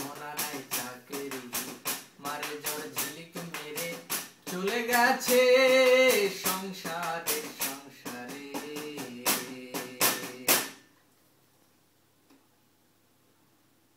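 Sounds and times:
man singing wordless tune: 0.0s - 10.8s.

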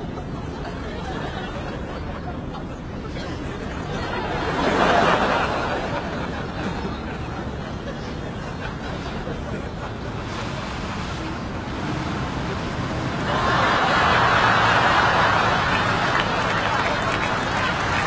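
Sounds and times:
studio audience laughter: 3.2s - 10.2s, 13.2s - 18.0s.

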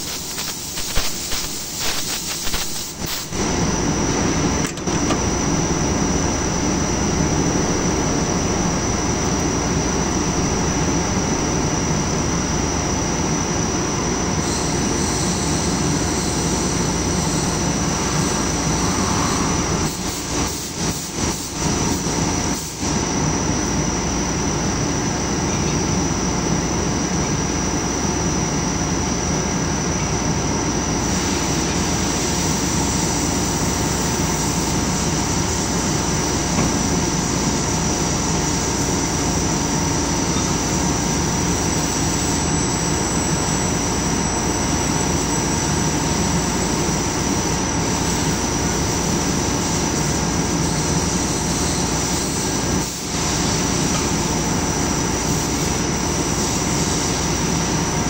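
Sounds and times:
heavy machinery running: 0.0s - 22.3s, 32.6s - 49.5s
high whine: 0.0s - 58.0s.

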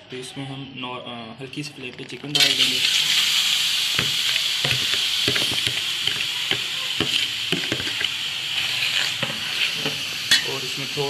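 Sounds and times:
chicken sizzling on hot steel: 2.3s - 11.0s.

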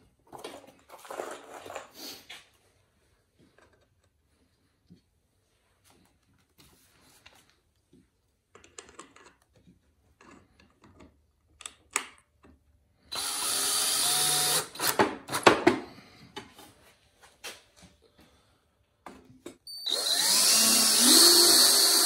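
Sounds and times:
cordless drill driving screws: 13.1s - 15.4s, 19.7s - 22.0s.

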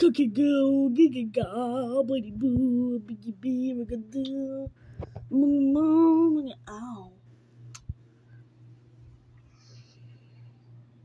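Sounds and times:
high voice singing wordless tune: 0.0s - 7.2s.

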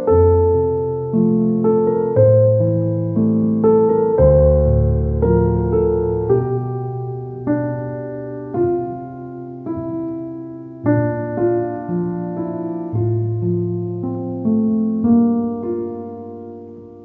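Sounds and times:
soft piano music: 0.0s - 17.0s.

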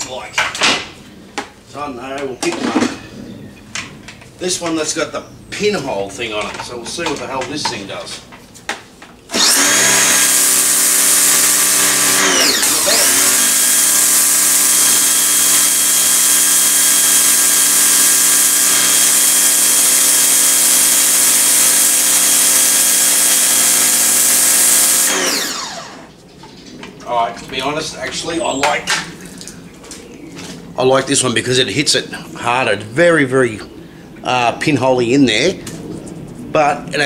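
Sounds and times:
pressure washer motor humming: 9.3s - 26.2s
high-pressure water jet hissing: 9.4s - 25.7s.

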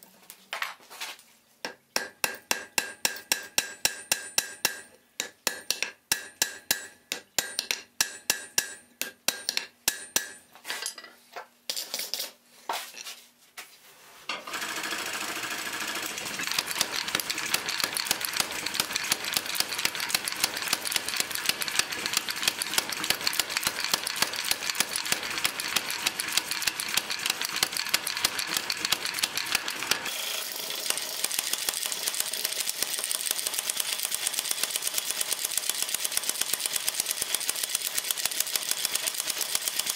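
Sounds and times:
hammer striking hot iron on anvil: 2.0s - 10.4s
power hammer pounding: 15.5s - 30.1s.

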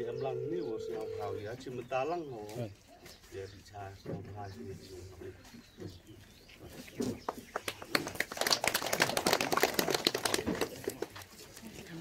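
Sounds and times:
people clapping: 7.3s - 11.6s.

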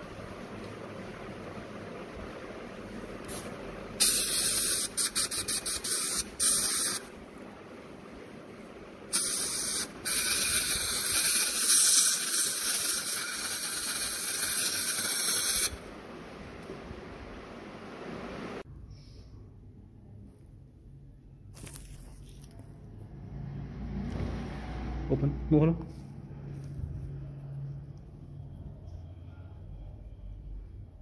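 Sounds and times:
dental air-water syringe hissing: 3.3s - 7.1s, 9.1s - 15.8s.

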